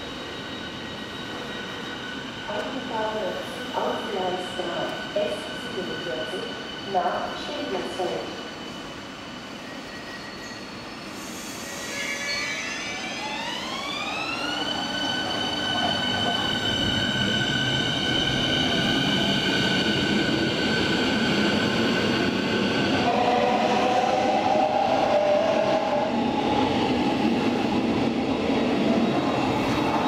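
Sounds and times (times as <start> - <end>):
electric train traction whine: 11.2 - 30.0.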